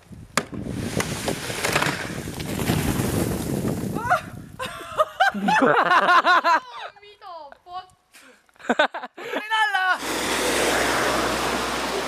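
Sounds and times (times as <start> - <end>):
snow sliding off roof: 0.6 - 6.3, 9.9 - 12.0
people laughing: 4.6 - 6.9, 8.6 - 9.6.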